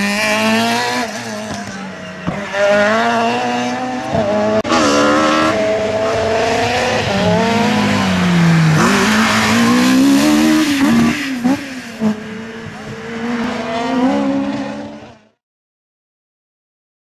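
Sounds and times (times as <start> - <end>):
race car engine revving: 0.0 - 15.4.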